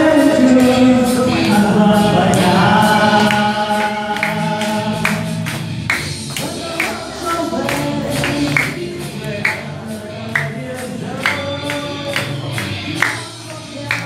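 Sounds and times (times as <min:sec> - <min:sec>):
group singing into microphones: 0:00.0 - 0:14.0
hand claps: 0:03.2 - 0:14.0.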